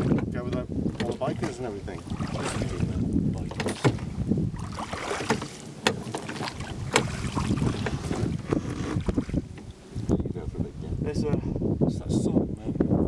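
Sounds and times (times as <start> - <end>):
oars clunking in metal rowlocks: 0.0 - 1.8, 3.5 - 4.1, 5.2 - 7.2
water washing: 0.0 - 10.0
wind rumble on microphone: 0.0 - 13.0.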